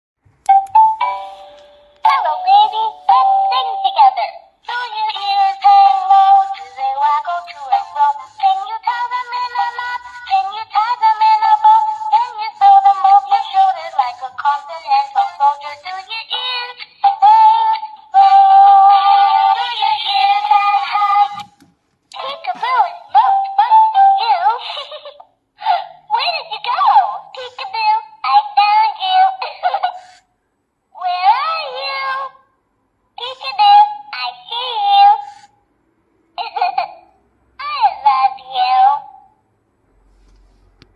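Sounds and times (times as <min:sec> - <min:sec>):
toy singing in high-pitched voice: 0:02.0 - 0:21.5, 0:22.2 - 0:25.2, 0:26.1 - 0:30.0, 0:31.0 - 0:32.4, 0:33.2 - 0:35.4, 0:37.6 - 0:39.3.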